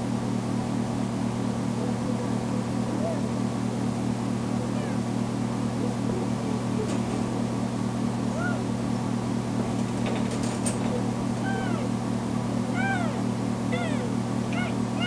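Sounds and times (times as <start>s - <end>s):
steady low hum: 0.0s - 15.0s
kitten meowing: 11.4s - 11.9s, 12.7s - 15.0s.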